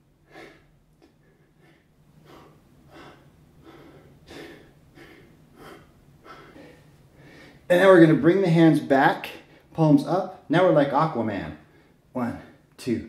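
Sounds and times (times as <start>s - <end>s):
man breathing hard: 0.2s - 7.7s.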